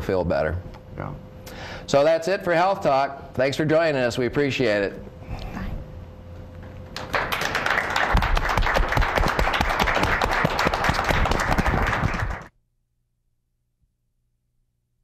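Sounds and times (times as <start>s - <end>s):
audience applauding: 7.0s - 12.5s.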